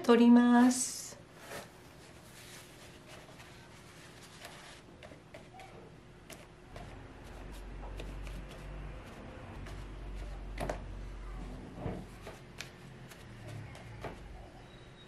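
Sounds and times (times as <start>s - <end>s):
tissue scuffing on paper: 1.3s - 5.7s.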